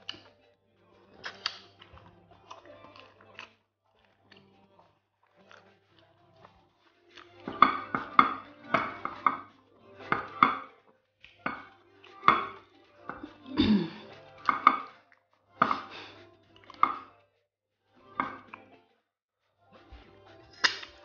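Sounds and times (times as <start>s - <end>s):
wet chewing and smacking: 0.0s - 9.5s.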